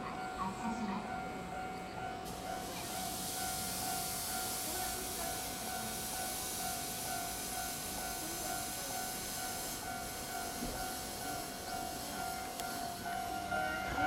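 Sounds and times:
train equipment hissing: 2.2 - 14.0.

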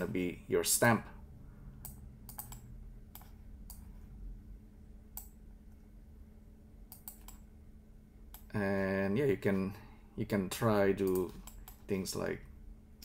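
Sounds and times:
faint low hum: 0.0 - 13.0.

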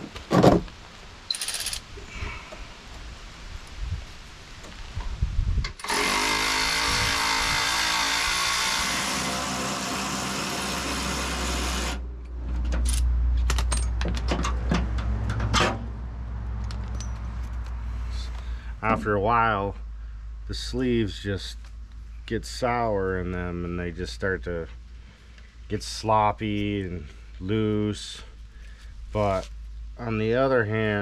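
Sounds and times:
sharp metallic clicks and clinks: 1.3 - 1.9, 12.8 - 14.6, 16.6 - 17.3
cordless power tool running: 5.8 - 12.0
low hum: 15.0 - 30.2.

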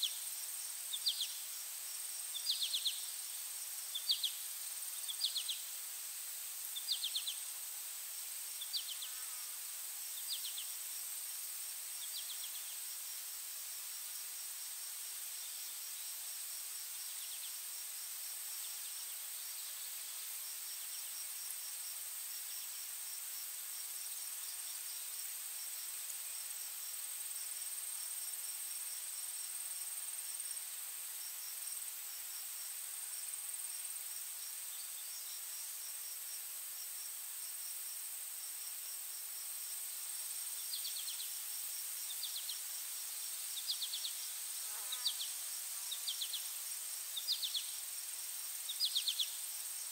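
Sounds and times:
rapid insect chirping: 0.0 - 49.9.

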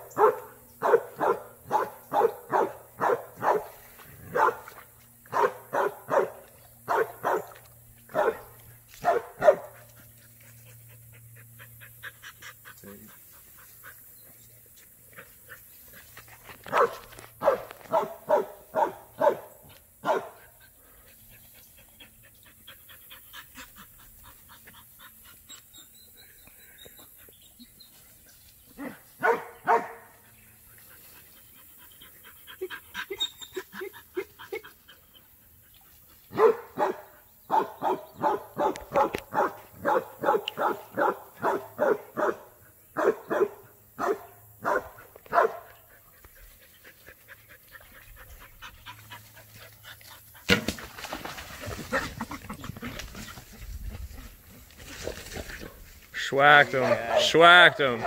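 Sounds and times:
dogs barking: 0.0 - 10.0, 16.7 - 20.6, 28.8 - 30.3, 36.3 - 46.0, 56.6 - 58.0.

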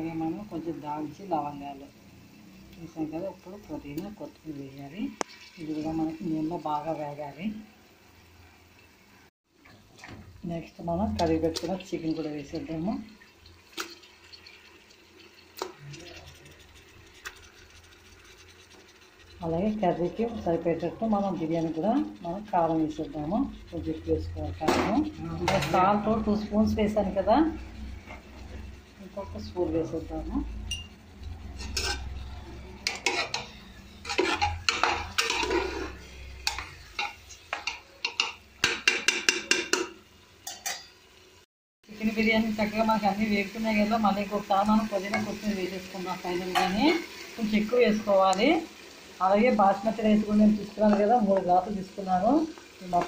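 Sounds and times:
faint frying sizzle: 0.0 - 53.0
spatula scraping a metal pot: 15.2 - 39.8
sharp knocks against pot: 37.6 - 40.0.

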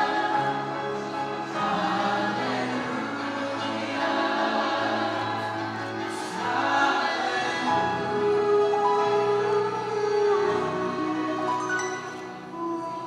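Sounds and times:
group singing in harmony: 0.0 - 13.0.

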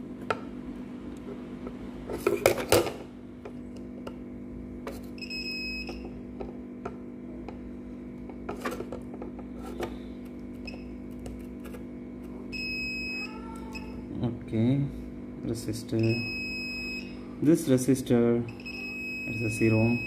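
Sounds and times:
steady low hum: 0.0 - 20.0
multimeter beep: 5.2 - 6.2, 12.5 - 14.0, 16.0 - 17.2, 18.4 - 20.0.

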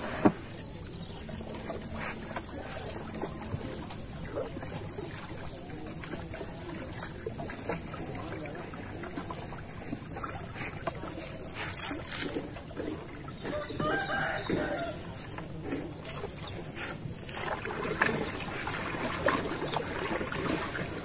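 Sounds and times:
paddle knocking against boat: 0.0 - 0.6
rooster crowing: 13.5 - 15.1.

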